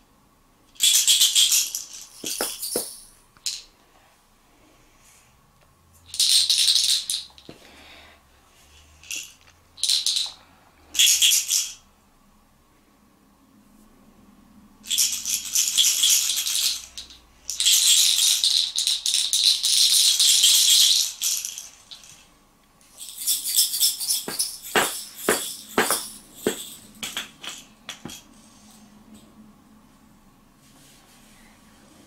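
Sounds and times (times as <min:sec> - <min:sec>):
wooden shaker rattling: 0:00.7 - 0:03.8, 0:06.0 - 0:07.6, 0:08.6 - 0:11.8, 0:14.8 - 0:29.3.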